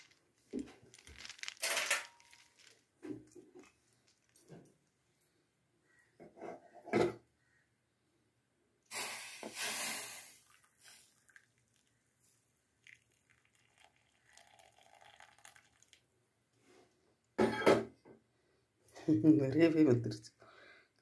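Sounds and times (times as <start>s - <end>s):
tea pouring into steel cup: 10.2s - 12.1s, 12.7s - 16.1s
liquid trickling and dripping: 10.4s - 16.1s.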